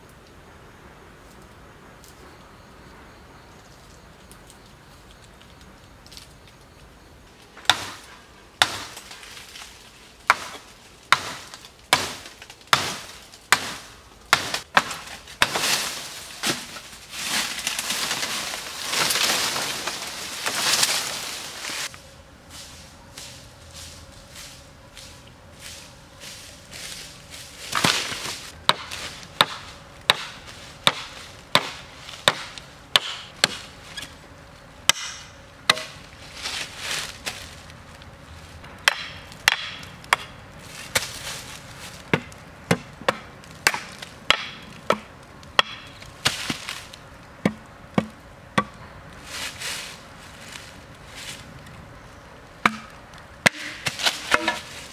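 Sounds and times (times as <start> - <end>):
machete chopping bamboo: 7.6 - 9.2, 10.2 - 18.2, 27.6 - 34.1, 34.9 - 36.0, 38.8 - 41.2, 42.0 - 46.8, 47.4 - 48.8, 52.6 - 54.9.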